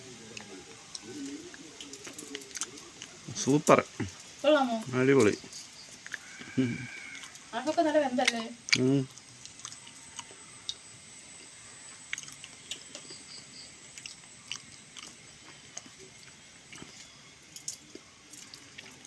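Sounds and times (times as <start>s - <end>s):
chewing and crunching seeds: 0.0s - 19.0s.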